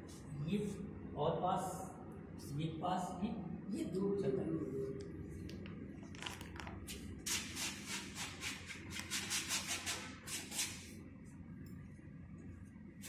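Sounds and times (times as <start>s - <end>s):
paintbrush scrubbing on canvas: 7.3s - 10.9s.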